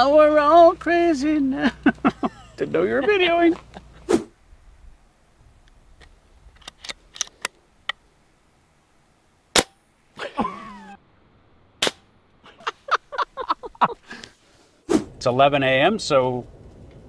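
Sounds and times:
short footsteps: 0:03.5 - 0:04.4
air rifle shots: 0:09.5 - 0:09.9, 0:11.8 - 0:12.1.

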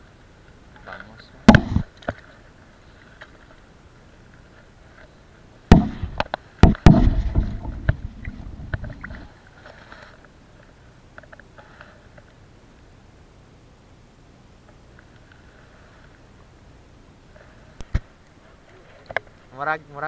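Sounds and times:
sharp knocks near microphone: 0:01.5 - 0:01.9, 0:05.7 - 0:08.1
deep rumbling handling noise: 0:05.7 - 0:09.3.

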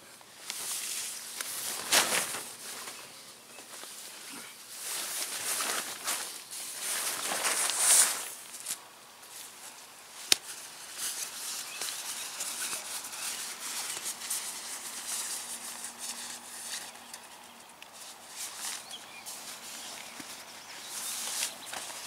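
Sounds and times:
nylon fabric rustling: 0:00.4 - 0:17.0.

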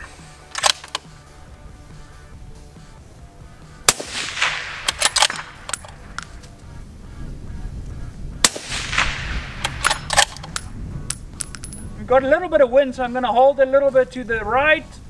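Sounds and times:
rifle bolt clicks: 0:00.6 - 0:01.1, 0:04.4 - 0:06.4, 0:09.6 - 0:11.9
rifle shot with echo: 0:03.9 - 0:06.3, 0:08.4 - 0:11.8.

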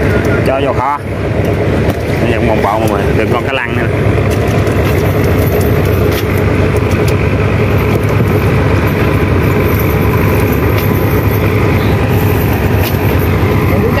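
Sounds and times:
engine droning: 0:00.0 - 0:14.0.

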